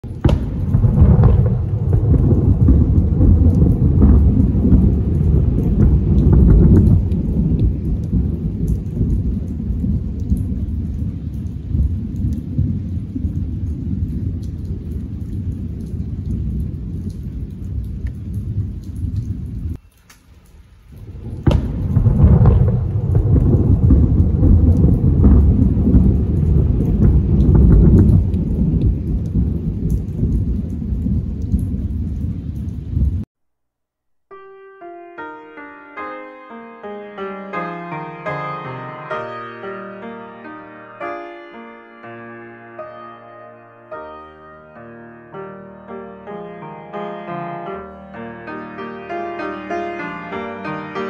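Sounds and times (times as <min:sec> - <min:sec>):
sharp thunder crack: 0:00.0 - 0:17.0, 0:21.0 - 0:33.3
rolling thunder: 0:00.0 - 0:19.8, 0:20.9 - 0:33.3
heavy rain pouring: 0:00.0 - 0:33.3, 0:37.1 - 0:51.0.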